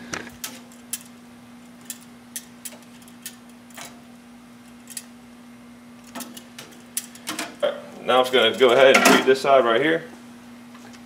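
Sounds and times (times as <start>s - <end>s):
faint steady hum: 0.0s - 11.0s
metal tongs clicking on grate: 0.4s - 1.1s, 1.8s - 4.0s, 4.8s - 5.1s, 6.1s - 7.5s.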